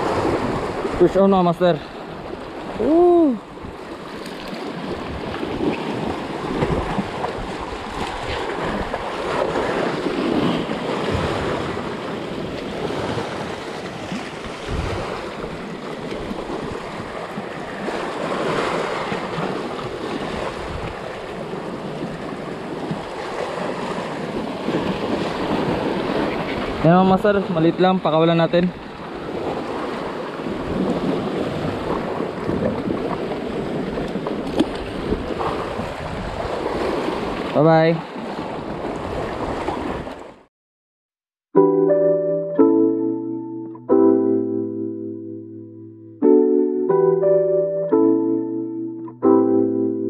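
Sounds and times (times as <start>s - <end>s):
wind buffeting microphone: 2.0s - 26.8s, 28.7s - 37.5s
person shouting: 2.8s - 3.4s.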